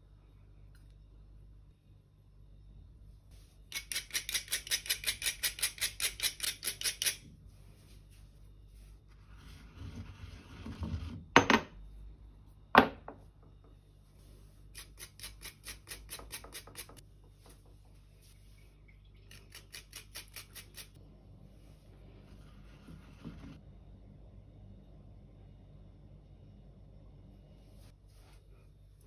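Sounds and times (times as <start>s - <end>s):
grater rasping ginger: 3.7s - 7.2s, 14.7s - 17.0s, 19.3s - 21.0s
mortar and pestle grinding: 3.7s - 7.2s.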